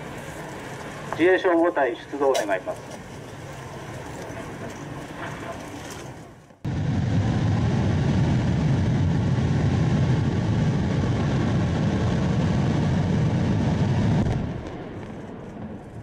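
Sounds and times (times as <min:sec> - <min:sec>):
rocket engine roaring: 0:00.0 - 0:16.0.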